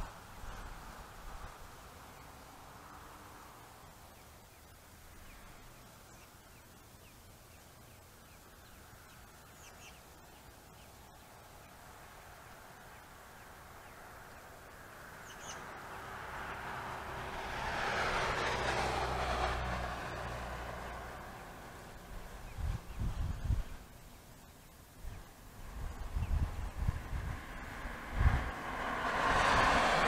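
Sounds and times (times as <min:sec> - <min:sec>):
faint bird chirps: 0:04.0 - 0:11.8, 0:15.2 - 0:15.7
rushing noise with low rumble: 0:14.0 - 0:24.0, 0:25.2 - 0:30.0.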